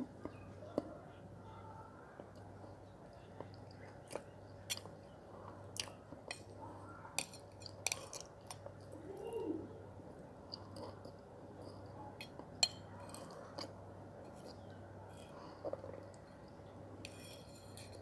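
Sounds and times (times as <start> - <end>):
person chewing wet paste: 3.2 - 6.6.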